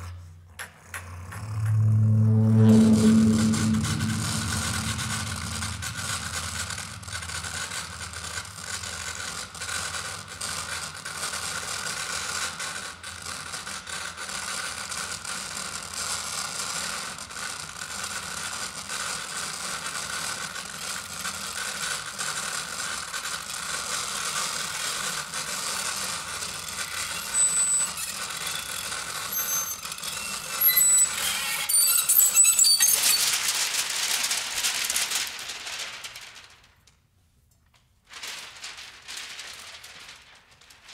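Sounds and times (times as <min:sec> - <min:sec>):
buzzing crackling percussion: 0:01.2 - 0:08.5.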